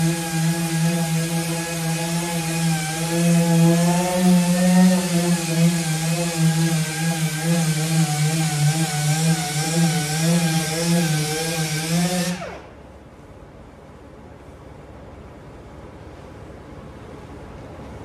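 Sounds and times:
electric sander running: 0.0s - 12.7s.

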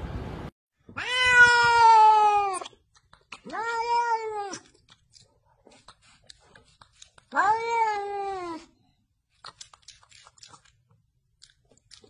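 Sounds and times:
cat meowing: 0.9s - 4.8s, 7.2s - 8.7s.

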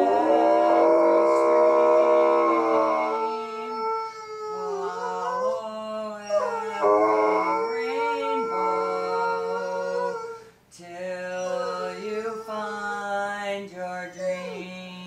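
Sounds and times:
dog howling: 0.0s - 10.4s, 14.1s - 14.8s
woman singing: 4.8s - 15.0s.

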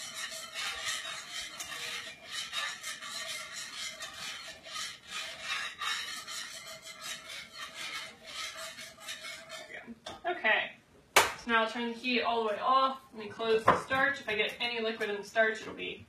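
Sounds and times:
utensil scraping a skillet: 0.0s - 10.0s, 13.2s - 15.7s.

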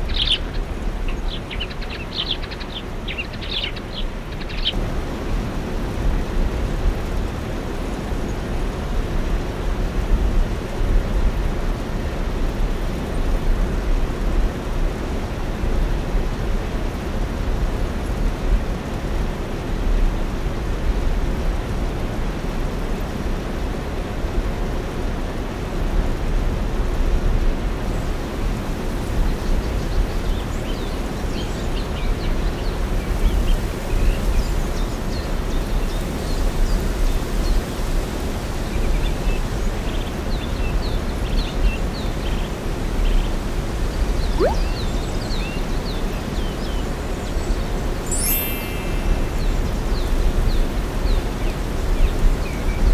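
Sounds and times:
outdoor rumble and hiss: 0.0s - 52.9s
faint high-pitched chirps: 44.3s - 45.5s, 48.0s - 50.1s.

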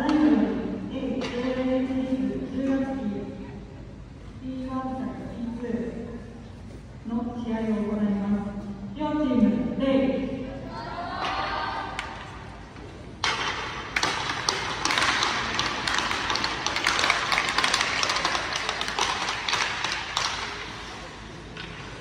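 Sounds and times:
hockey sticks clicking: 11.2s - 22.0s
skates scraping on ice: 14.0s - 22.0s.

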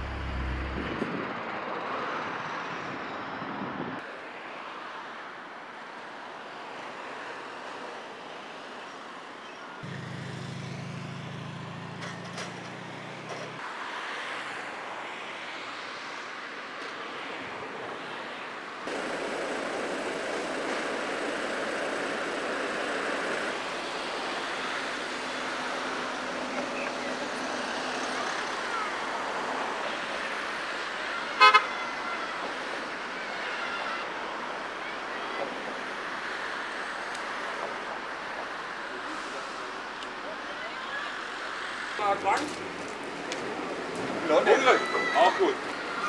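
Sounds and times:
engine hum: 0.0s - 1.2s, 9.8s - 13.6s
outdoor noise: 0.0s - 46.0s
horn toot: 31.4s - 31.7s.

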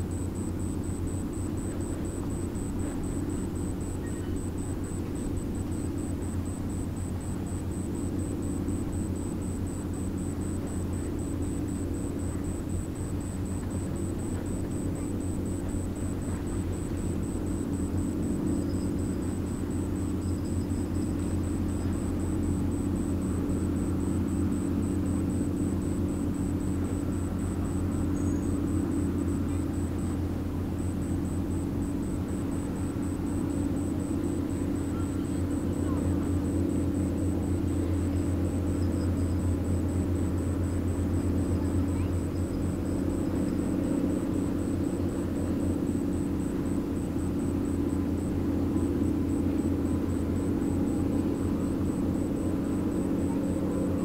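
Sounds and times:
faint high-pitched ticking: 0.0s - 54.0s.

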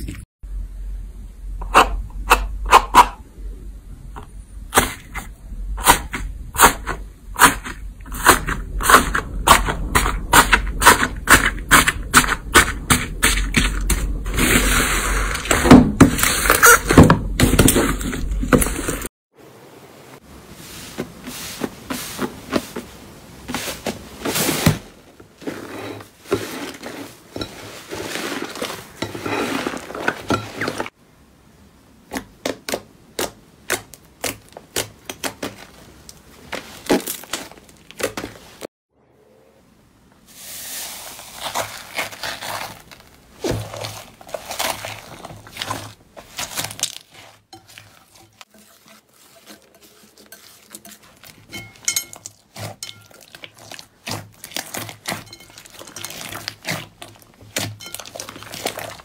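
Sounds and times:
hands squishing slime: 41.0s - 59.0s.

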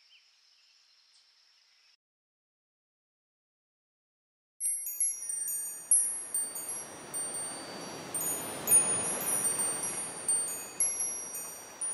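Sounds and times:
wind chimes ringing: 4.6s - 11.9s
soft rushing hiss: 5.0s - 11.9s.

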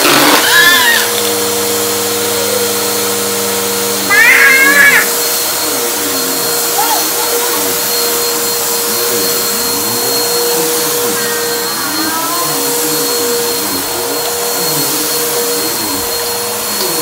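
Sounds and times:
vacuum cleaner running: 0.0s - 17.0s.

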